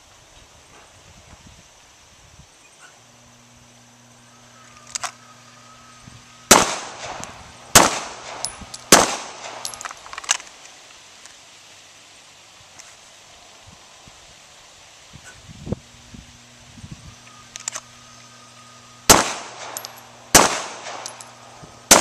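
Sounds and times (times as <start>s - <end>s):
pistol shots: 6.5s - 9.8s, 19.1s - 21.2s.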